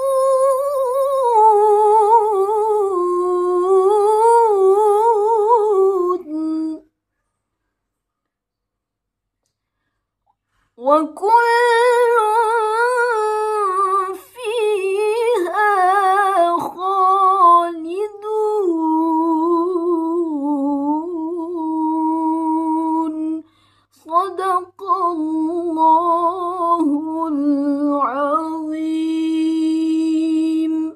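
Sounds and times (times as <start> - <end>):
woman's melodic recitation: 0.0 - 6.9, 10.8 - 30.9.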